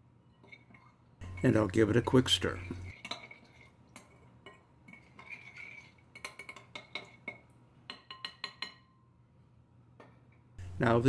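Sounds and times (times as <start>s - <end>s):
spoon clinking in glass bowl: 0.4s - 9.1s.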